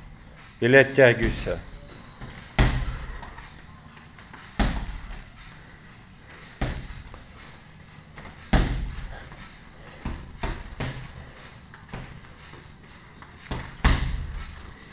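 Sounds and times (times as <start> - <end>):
punches thudding on punching ball: 2.2 - 3.2, 4.6 - 5.2, 6.6 - 7.1, 8.2 - 9.4, 10.0 - 11.2, 13.5 - 14.6.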